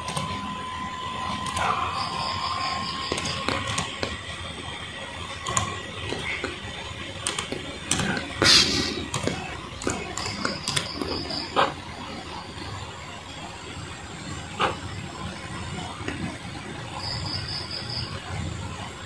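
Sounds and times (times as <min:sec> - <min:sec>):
laptop keys clicking: 0:03.1 - 0:04.2, 0:07.2 - 0:08.2, 0:09.1 - 0:11.1.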